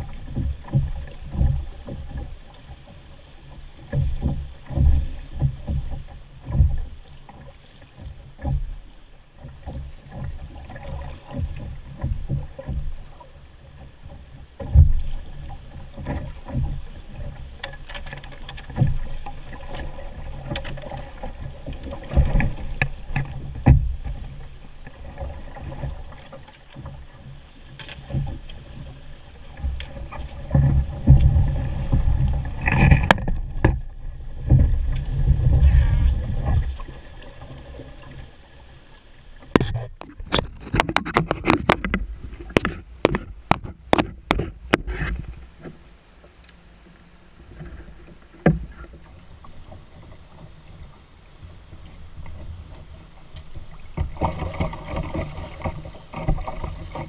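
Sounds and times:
water rushing along hull: 0:00.0 - 0:57.0
pole knocking on canoe: 0:03.9 - 0:06.9, 0:39.4 - 0:46.4, 0:47.5 - 0:49.2.

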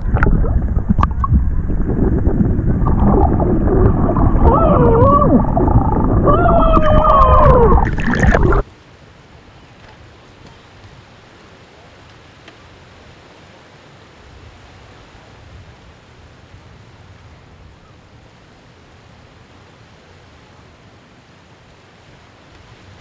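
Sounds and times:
wind on microphone: 0:00.0 - 0:08.6
small waves washing: 0:00.0 - 0:09.0.

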